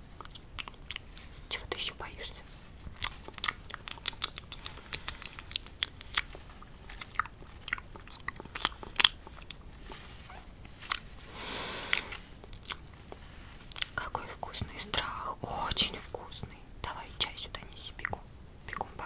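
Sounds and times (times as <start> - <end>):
wet mouth clicks and smacks: 0.2 - 1.1, 3.0 - 9.6, 11.9 - 13.1.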